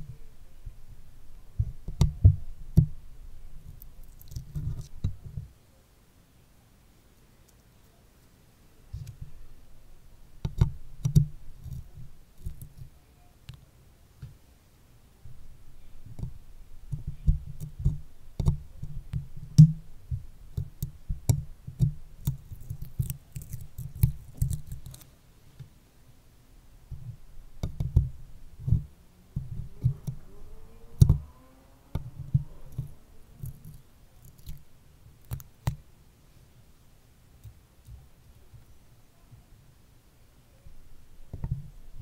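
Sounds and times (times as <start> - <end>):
stickers handled on microphone: 21.7 - 25.1.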